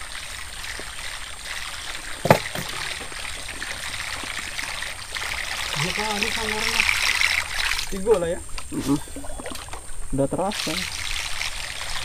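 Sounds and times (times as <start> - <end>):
water trickling and splashing: 0.0 - 12.0
sharp knock on wood: 2.2 - 2.8.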